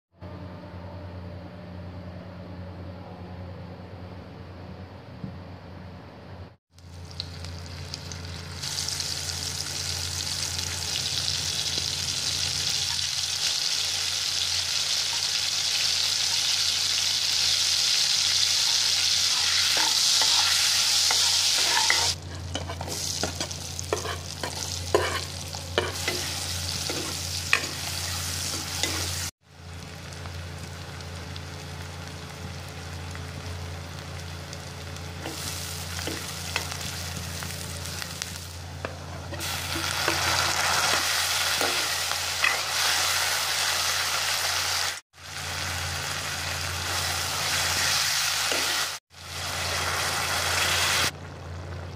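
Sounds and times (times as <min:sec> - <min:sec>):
onions frying: 0:06.7 - 0:51.9
butter sizzling in hot oil: 0:06.8 - 0:51.9
metal ladle scraping pan: 0:19.3 - 0:29.2.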